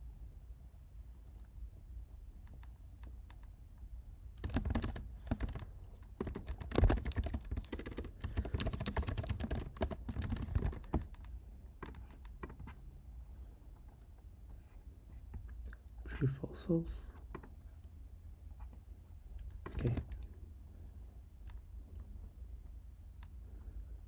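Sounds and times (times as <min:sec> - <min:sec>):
fast typing on keyboard: 0:04.4 - 0:12.8, 0:19.6 - 0:20.3.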